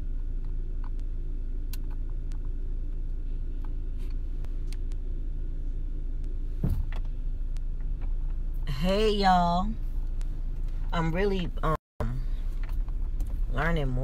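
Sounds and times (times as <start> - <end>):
car engine rumble inside cabin: 0.0 - 14.0
brief thump: 6.6 - 7.0.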